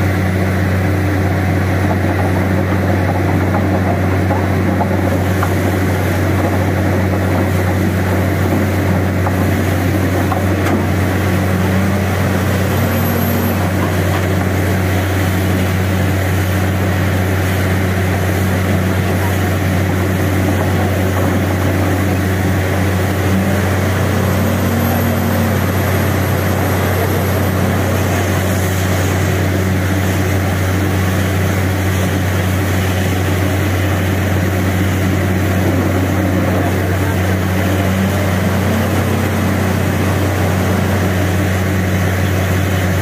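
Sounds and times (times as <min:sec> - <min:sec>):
drilling rig droning: 0:00.0 - 0:43.0
air and water blowing out: 0:04.0 - 0:43.0.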